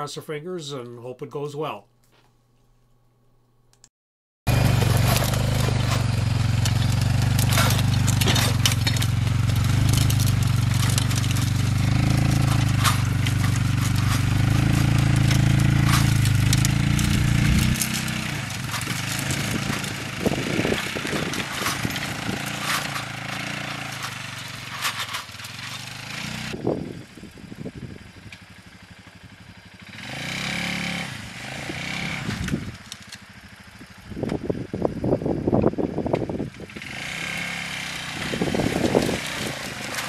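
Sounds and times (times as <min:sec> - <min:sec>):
disc harrow knocking and clattering: 0:04.5 - 0:25.9
atv engine running under load: 0:04.5 - 0:40.0.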